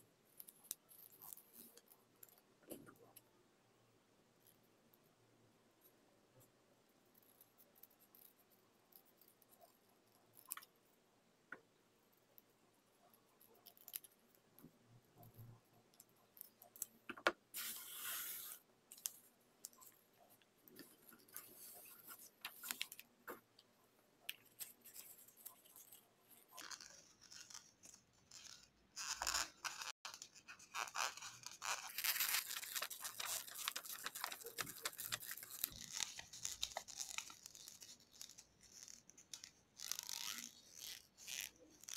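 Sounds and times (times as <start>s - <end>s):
crackly paper crinkling: 24.3s - 40.2s.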